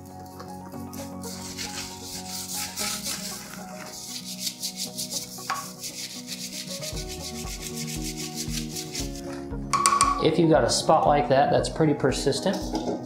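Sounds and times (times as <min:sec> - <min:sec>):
background music: 0:00.0 - 0:13.0
toilet brush scrubbing bowl: 0:01.0 - 0:09.4.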